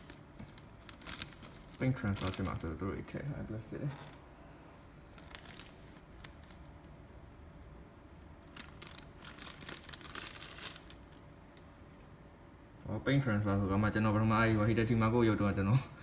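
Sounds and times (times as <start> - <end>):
plastic wrapping crinkling: 0.0 - 3.2, 5.1 - 6.8, 8.4 - 11.3.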